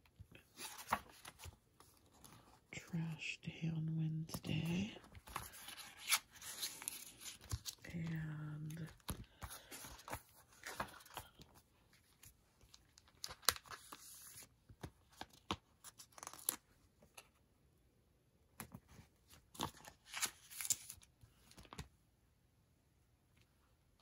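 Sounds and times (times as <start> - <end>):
paper pages turning: 0.4 - 2.6, 4.3 - 17.2, 18.6 - 21.9.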